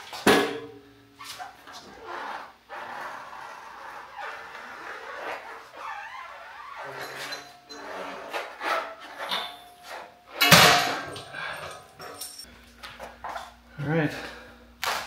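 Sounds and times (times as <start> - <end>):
metal clanks and rattles: 9.2 - 12.5
loud metal clunk: 10.4 - 11.2.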